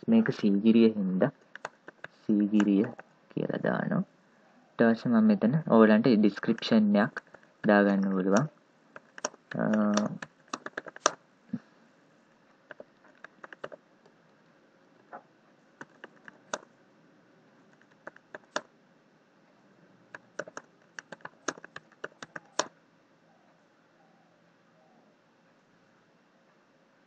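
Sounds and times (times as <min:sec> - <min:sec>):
computer keyboard typing: 0:01.4 - 0:03.0, 0:06.4 - 0:11.2, 0:12.7 - 0:13.8, 0:15.8 - 0:16.7, 0:17.7 - 0:18.7, 0:20.1 - 0:22.7.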